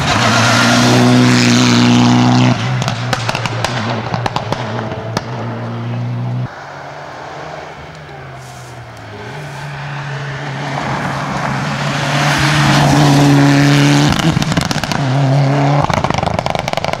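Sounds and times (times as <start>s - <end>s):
rally car engine at high revs: 0.0s - 6.5s, 9.1s - 17.0s
engine crackling: 7.8s - 17.0s.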